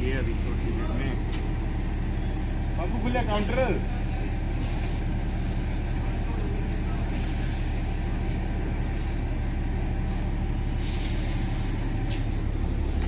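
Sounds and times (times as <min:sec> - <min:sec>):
diesel locomotive idling: 0:00.0 - 0:13.0
air release hiss: 0:10.7 - 0:12.3.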